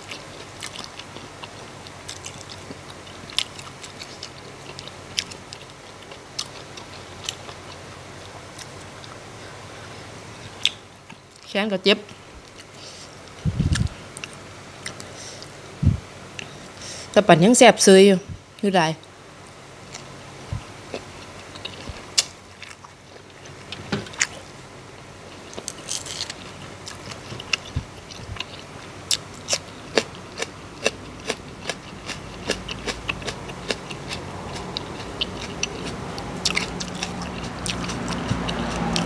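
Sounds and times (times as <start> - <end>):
close chewing and crunching: 0.0 - 9.6, 20.9 - 39.0.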